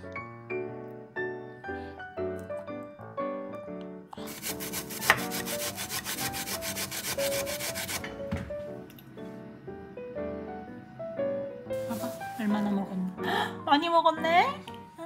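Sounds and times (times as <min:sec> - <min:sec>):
piano background music: 0:00.0 - 0:15.0
pear scraping on metal grater: 0:04.2 - 0:08.1.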